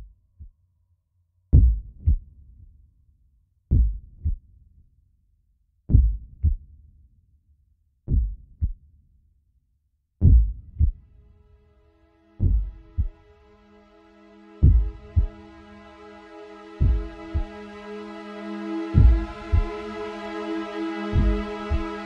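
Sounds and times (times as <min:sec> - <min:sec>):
deep heartbeat-like thumps: 0:01.5 - 0:02.3, 0:03.7 - 0:04.4, 0:05.9 - 0:06.6, 0:08.1 - 0:08.8, 0:10.2 - 0:11.0, 0:12.4 - 0:13.2, 0:14.6 - 0:15.3, 0:16.8 - 0:17.5, 0:19.0 - 0:19.7, 0:21.2 - 0:21.8.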